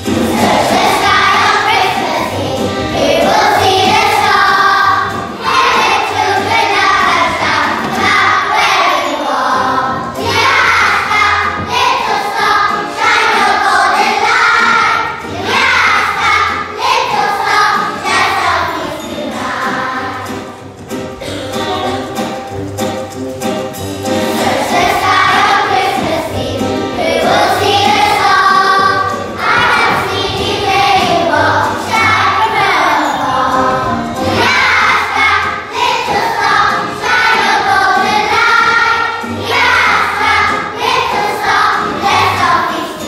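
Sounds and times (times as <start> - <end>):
young children singing: 0.0 - 22.4, 24.1 - 43.0
instrumental accompaniment: 0.0 - 43.0.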